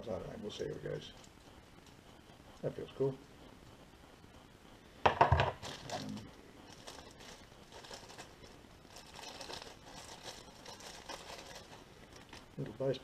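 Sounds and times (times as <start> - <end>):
plastic parts clattering onto table: 5.1 - 5.7
plastic packaging crinkling: 5.2 - 13.0.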